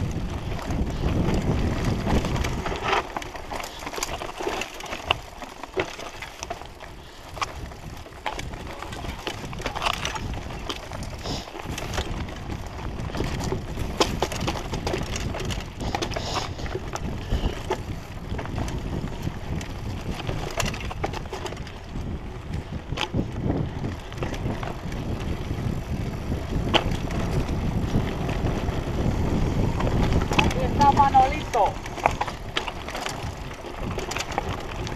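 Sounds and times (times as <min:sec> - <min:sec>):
bike rattling over bumps: 0:00.0 - 0:34.9
bike tyres on dirt and stones: 0:00.0 - 0:34.9
steady rushing noise: 0:22.2 - 0:34.9.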